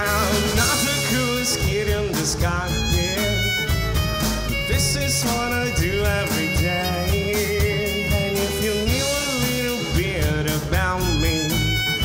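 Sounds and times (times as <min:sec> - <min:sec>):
acoustic guitar: 0:00.0 - 0:12.0
drums: 0:00.0 - 0:12.0
electric guitar: 0:00.0 - 0:12.0
violin: 0:00.0 - 0:12.0.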